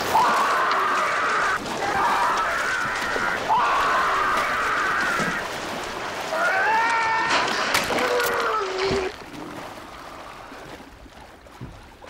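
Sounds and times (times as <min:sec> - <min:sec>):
man screaming in agony: 0:00.0 - 0:05.4, 0:06.3 - 0:09.0.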